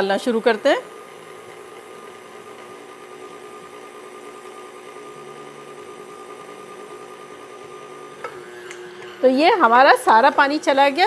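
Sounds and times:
stand mixer motor humming: 0.0 - 11.0.

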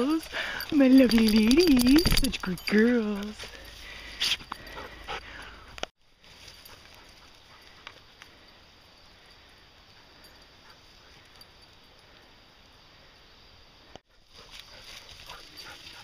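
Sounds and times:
faint woodland ambience: 0.0 - 16.0
clicks and rustling: 0.2 - 3.6.

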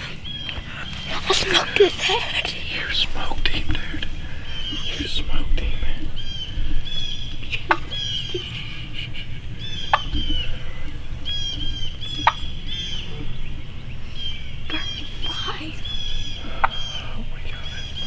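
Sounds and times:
wild turkeys chirping: 0.0 - 18.0
sharp piercing turkey call: 9.6 - 13.0.

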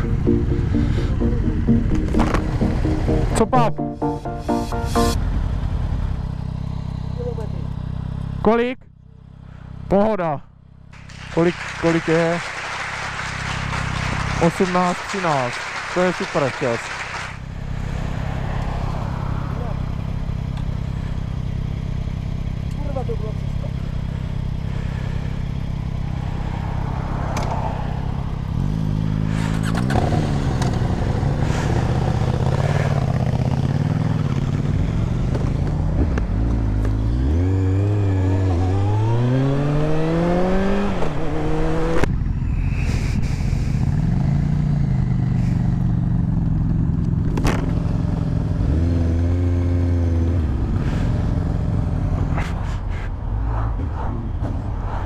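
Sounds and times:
motorcycle engine accelerating: 0.0 - 3.5, 4.2 - 9.8, 10.8 - 42.7, 43.3 - 55.0
wind rush over microphone: 52.4 - 55.0.

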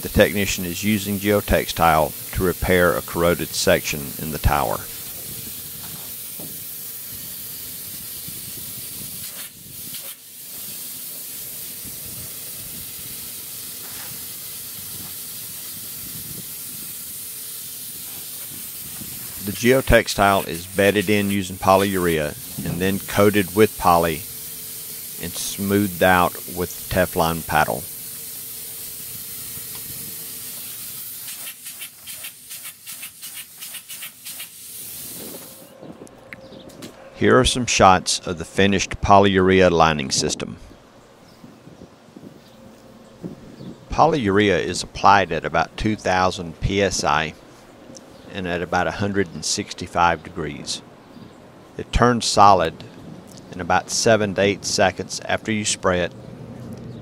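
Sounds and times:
spray gun hissing: 0.0 - 35.8.

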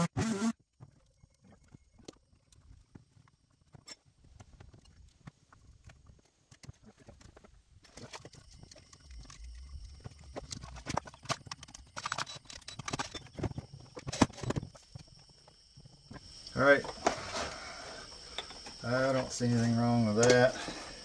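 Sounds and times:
hand tools clattering: 18.3 - 20.8.

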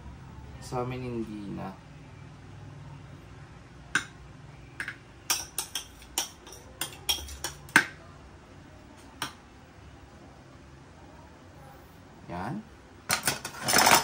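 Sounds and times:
spoon scraping and knocking bowl: 4.8 - 7.9.

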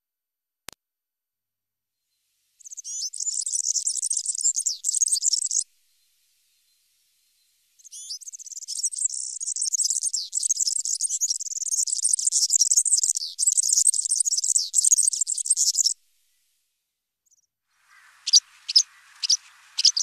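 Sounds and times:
bird singing jingling song: 2.6 - 5.7, 6.5 - 16.0, 17.3 - 20.0.

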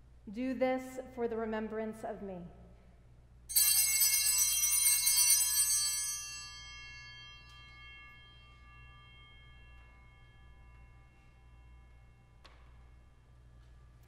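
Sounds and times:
bell ringing: 3.5 - 13.5.

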